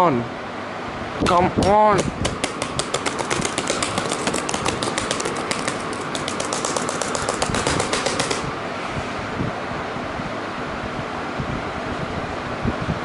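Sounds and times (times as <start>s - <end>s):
laptop keys tapping rapidly: 1.6s - 8.5s.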